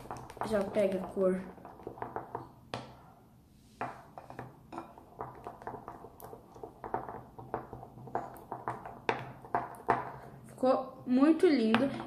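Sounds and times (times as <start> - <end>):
spatula scraping glass bowl: 3.9 - 10.3.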